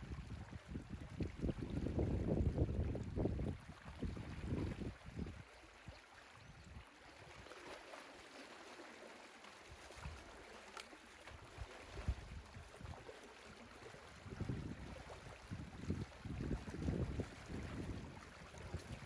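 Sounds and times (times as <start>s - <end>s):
wind buffeting microphone: 0.0s - 5.4s, 14.1s - 19.0s.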